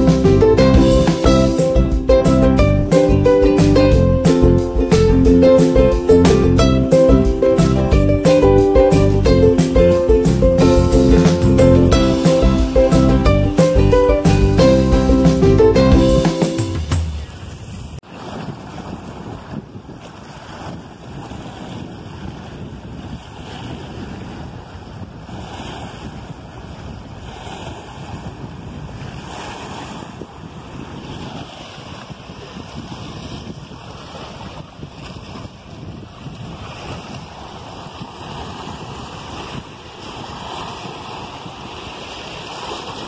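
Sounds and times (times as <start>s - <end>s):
wind buffeting microphone: 17.0s - 43.0s
small waves lapping on stones: 29.0s - 43.0s.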